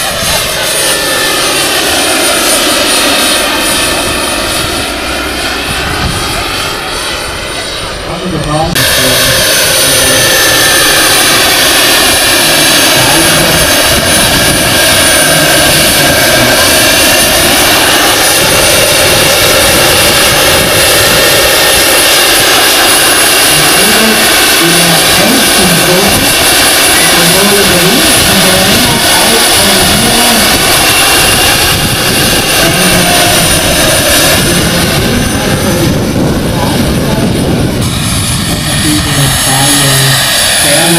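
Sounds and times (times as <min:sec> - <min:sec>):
model helicopter turbine whine: 0:00.0 - 0:40.9.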